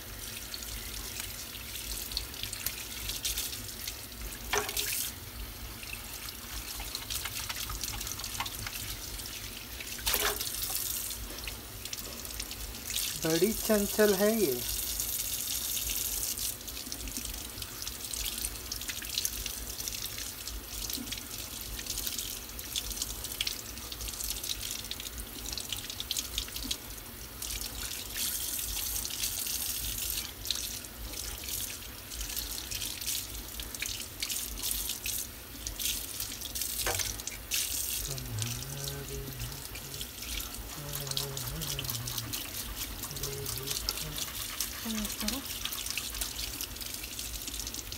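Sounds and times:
tap running into sink: 4.5 - 5.1.

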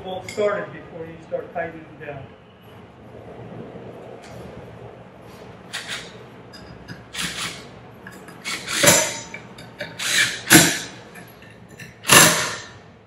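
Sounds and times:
cordless drill driving bolts into metal: 7.2 - 7.6, 8.4 - 10.9, 12.0 - 12.7.

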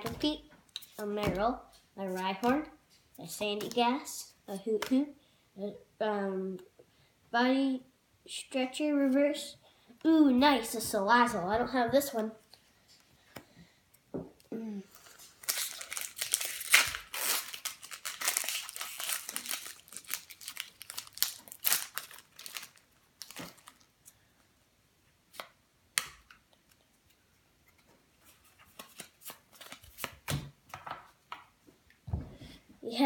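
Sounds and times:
foil pack tearing and crinkling: 15.2 - 23.9.

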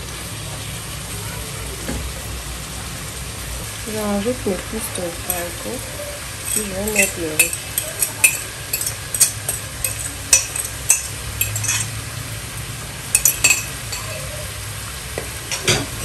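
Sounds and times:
vegetables sizzling in pot: 0.0 - 16.0
fork scraping a plate: 6.4 - 12.0.

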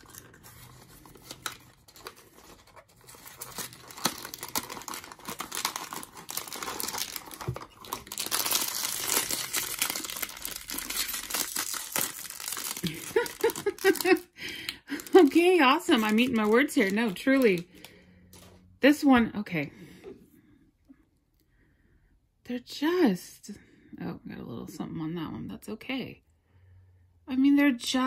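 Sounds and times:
foil bag crinkling and tearing: 0.0 - 14.3, 14.9 - 17.9.

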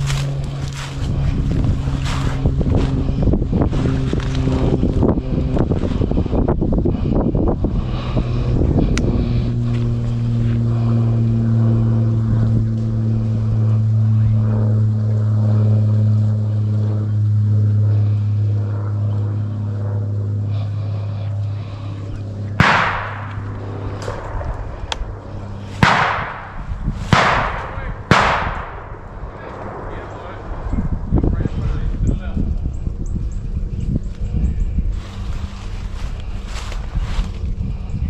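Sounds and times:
steady low engine drone: 0.0 - 38.0
shotgun shot: 22.6 - 23.4, 25.8 - 29.0.

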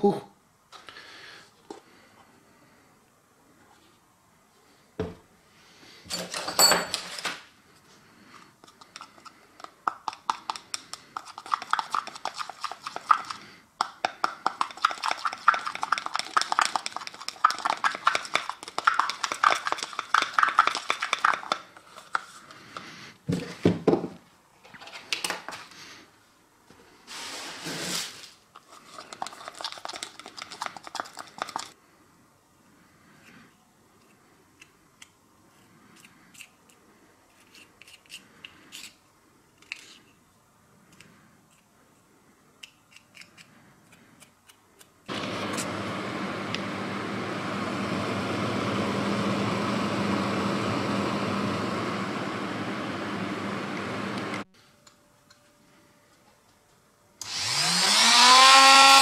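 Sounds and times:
screwdriver scraping in plastic cup: 28.6 - 31.8, 37.3 - 39.0.

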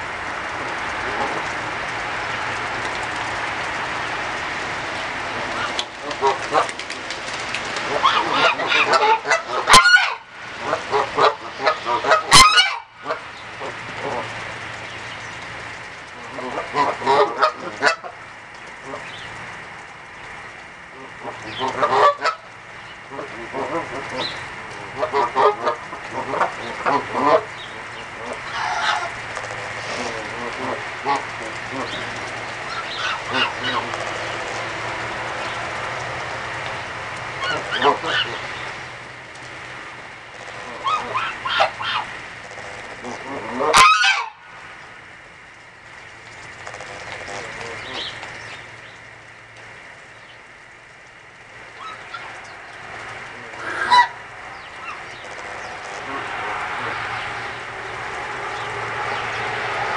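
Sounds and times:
steady background hiss: 0.0 - 59.9
goose honking: 7.8 - 14.3, 16.3 - 18.2, 21.1 - 22.5, 23.1 - 27.5, 28.1 - 29.2, 29.8 - 35.0, 37.3 - 38.5, 40.5 - 44.4, 51.8 - 59.9.

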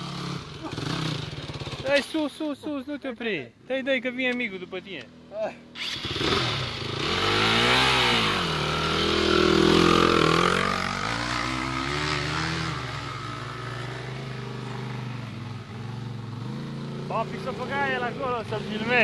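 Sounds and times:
quad bike engines revving: 0.0 - 2.3, 5.0 - 19.0.

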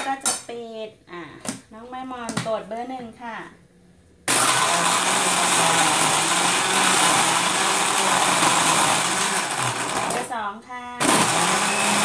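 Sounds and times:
blender motor whining: 4.3 - 10.3, 11.0 - 12.0.

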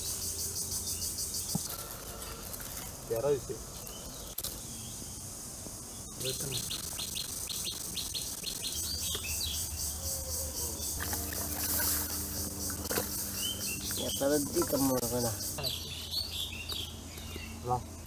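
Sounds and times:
bird chirping: 3.6 - 18.0
low steady hum: 8.2 - 18.0.

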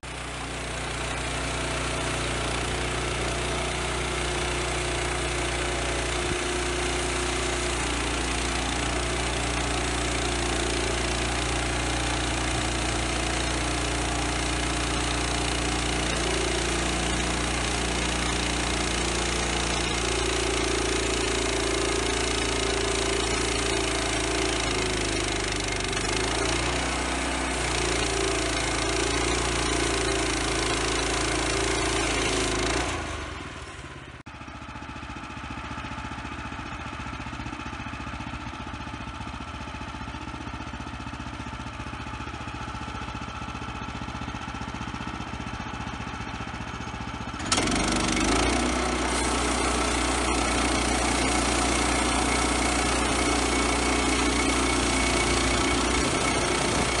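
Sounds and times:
gas engine running under load: 0.0 - 57.0
band blade cutting log: 0.9 - 33.4, 47.4 - 57.0.

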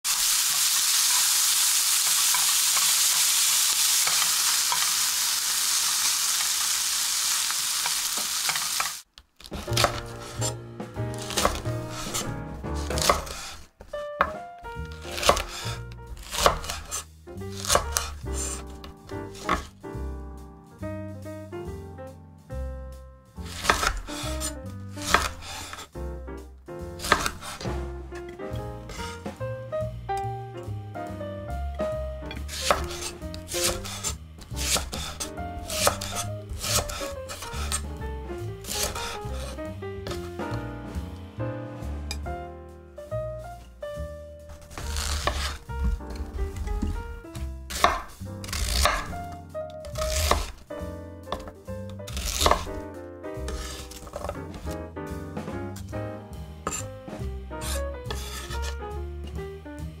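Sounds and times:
knife slicing on cutting board: 8.4 - 19.8, 23.4 - 25.9, 27.0 - 27.9, 28.8 - 29.3, 32.4 - 37.9, 38.6 - 40.6, 44.5 - 50.6, 51.3 - 52.8, 53.5 - 54.8, 56.6 - 56.9, 57.6 - 58.8
background music: 9.6 - 60.0.

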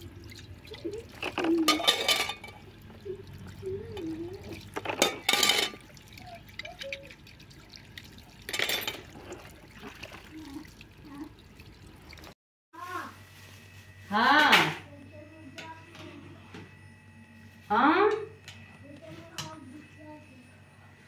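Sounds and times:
metal pot rinsed splashing: 0.0 - 12.4
water running from tap: 0.0 - 12.4.

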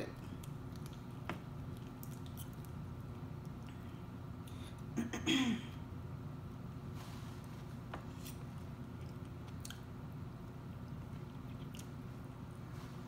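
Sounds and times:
steady low hum: 0.0 - 13.0
person chewing: 0.3 - 4.9, 8.1 - 12.3.

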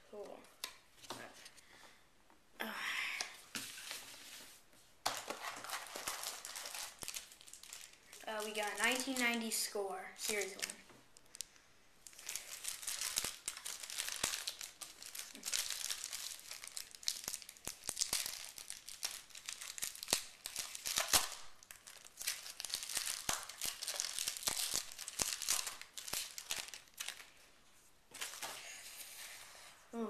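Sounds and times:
shiny wrapper tearing and crinkling: 5.1 - 9.4, 10.2 - 11.5, 12.1 - 27.4.

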